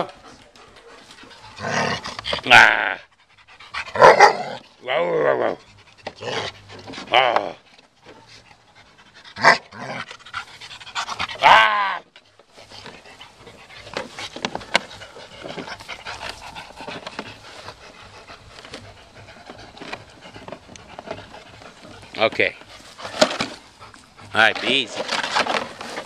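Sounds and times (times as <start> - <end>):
dog panting: 0.0 - 4.2, 5.6 - 7.1, 10.1 - 11.4, 12.5 - 26.0
plastic crackling under teeth: 12.1 - 26.0.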